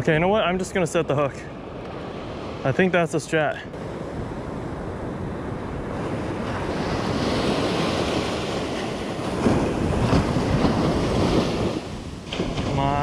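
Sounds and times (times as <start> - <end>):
ocean surf breaking: 0.0 - 13.0
wind rumbling on microphone: 3.6 - 13.0.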